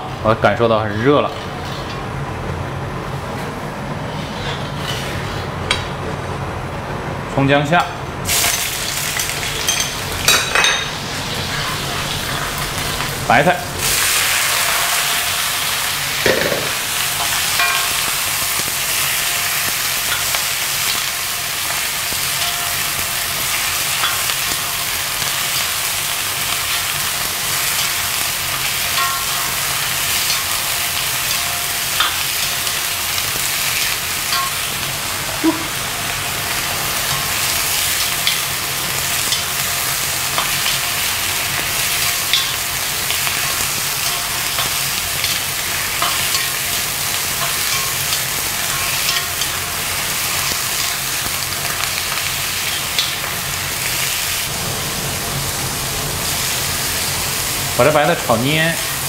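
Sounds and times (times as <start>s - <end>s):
metal ladle scraping a wok: 4.0s - 5.6s
vegetables sizzling in hot oil: 8.2s - 59.0s.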